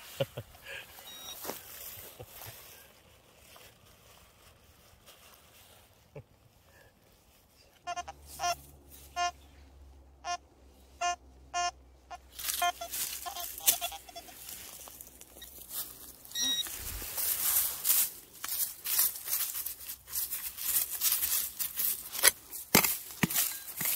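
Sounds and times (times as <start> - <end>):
digging in dry leaf litter: 0.0 - 9.6, 12.2 - 23.9
metal detector beeping: 1.0 - 1.6, 7.9 - 9.4, 10.2 - 10.4, 11.0 - 15.7, 16.3 - 17.7, 23.2 - 23.9.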